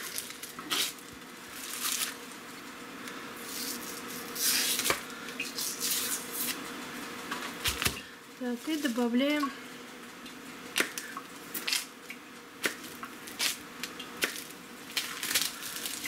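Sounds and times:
paper wrapping rustling: 0.0 - 2.3, 14.9 - 16.0.

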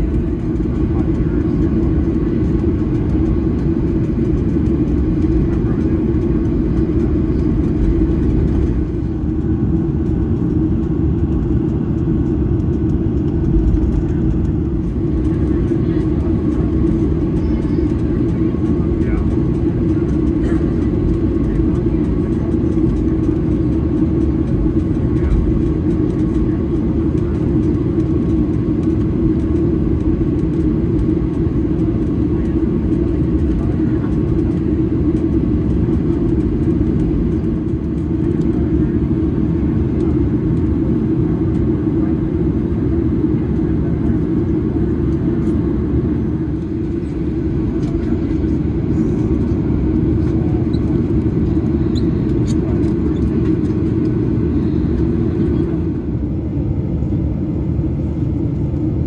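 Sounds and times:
vehicle rumble from inside: 0.0 - 26.6.

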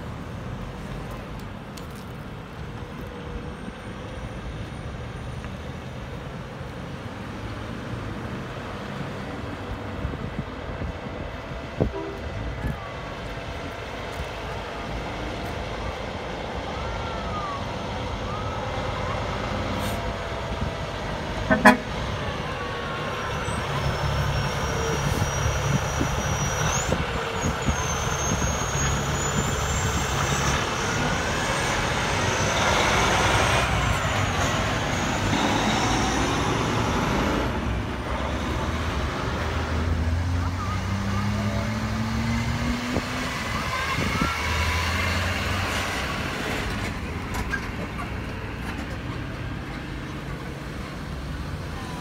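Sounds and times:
diesel truck engine pulling away: 7.3 - 51.8
truck horn toot: 11.9 - 12.4, 21.5 - 22.0.

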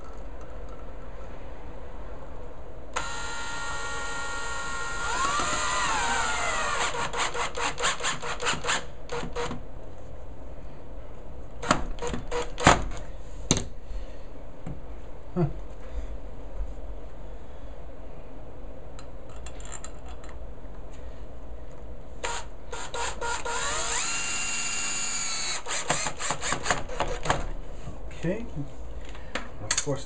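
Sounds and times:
cordless drill whine: 3.0 - 9.6, 22.2 - 27.2.

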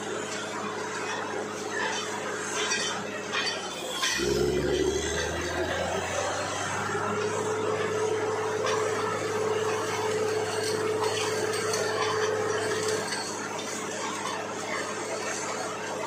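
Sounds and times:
constant hum: 0.0 - 16.0
drilling rig machinery running: 0.0 - 16.0
low drone: 3.7 - 14.1.

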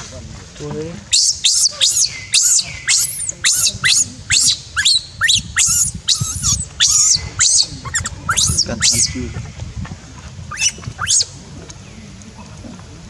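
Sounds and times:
baby monkey screaming: 1.1 - 9.6, 10.5 - 11.3.

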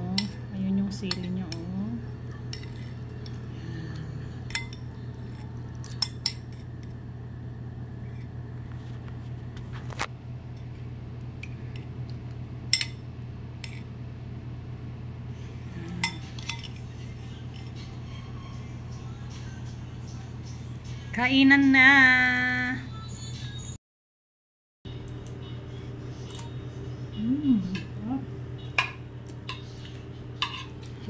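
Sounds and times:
low hum: 0.0 - 21.3, 24.9 - 31.0
metal spoons clinking on glass bowl: 16.0 - 16.8.

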